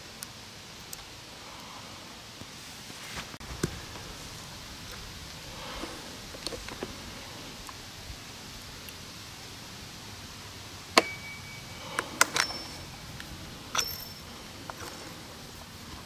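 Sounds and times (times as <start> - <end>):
sharp metallic clinks: 11.0 - 15.2.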